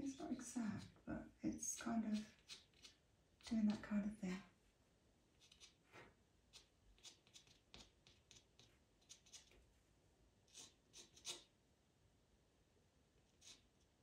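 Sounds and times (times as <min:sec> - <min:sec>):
pencil scratching on paper: 0:01.6 - 0:03.8, 0:05.3 - 0:09.6, 0:10.5 - 0:11.5, 0:13.2 - 0:13.9.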